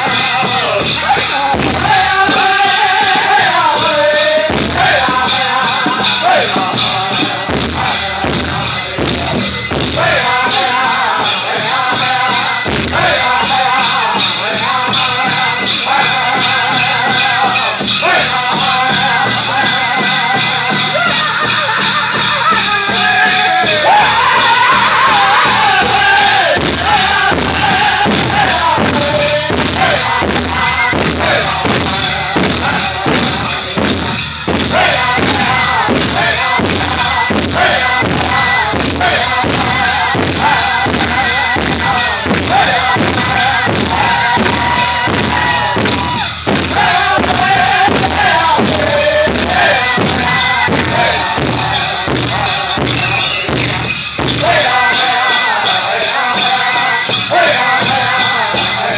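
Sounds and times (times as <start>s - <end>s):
steady beat on large drum: 0.0s - 58.9s
voices singing high phrases: 10.0s - 33.8s, 34.7s - 53.6s, 54.4s - 58.9s.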